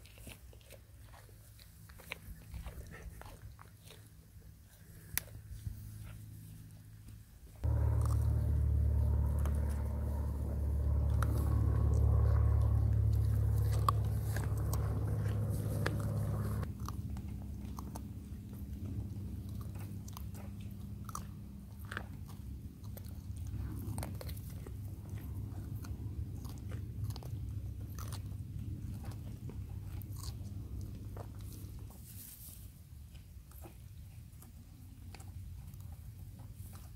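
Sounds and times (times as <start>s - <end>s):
goats crunching carrots: 0.0s - 36.9s
loud low hum: 7.6s - 32.0s.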